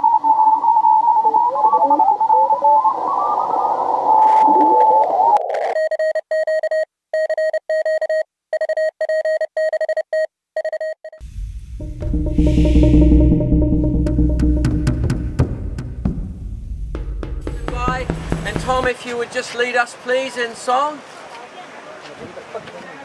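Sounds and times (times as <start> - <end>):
morse code tones: 5.7 - 11.2, 11.8 - 18.9
morse tone keyed on and off: 11.2 - 18.9
music: 11.2 - 18.9.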